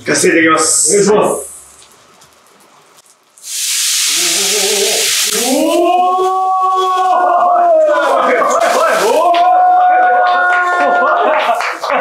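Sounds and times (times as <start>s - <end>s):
meat sizzling in a pan: 3.4s - 6.8s, 8.6s - 9.3s
voices exclaiming in admiration: 5.3s - 11.2s.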